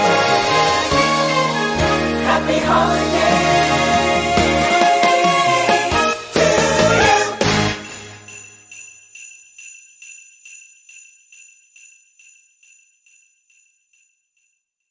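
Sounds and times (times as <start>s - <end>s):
sleigh bells shaken: 5.3s - 14.9s.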